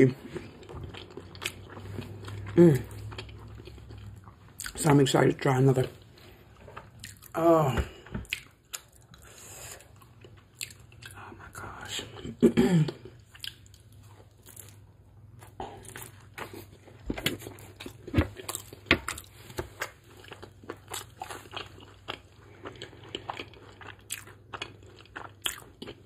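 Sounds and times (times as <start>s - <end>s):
crunchy chewing: 0.1s - 5.0s, 13.0s - 26.0s.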